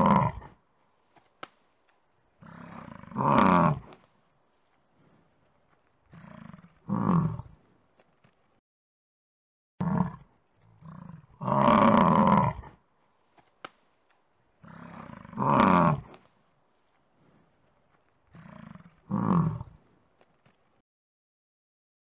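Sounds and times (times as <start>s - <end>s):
bison grunting: 0.0s - 0.6s, 2.4s - 4.0s, 6.1s - 7.6s, 9.8s - 12.8s, 14.6s - 16.2s, 18.3s - 19.8s
bison bellowing: 14.6s - 16.1s.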